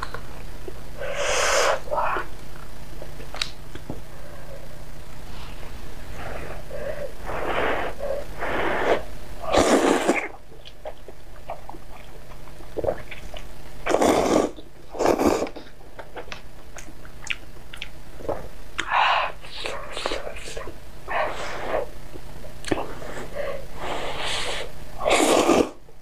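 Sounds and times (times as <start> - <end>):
person slurping noodles: 7.2 - 10.4, 13.9 - 15.6, 22.9 - 25.8
faint chewing: 10.1 - 18.9.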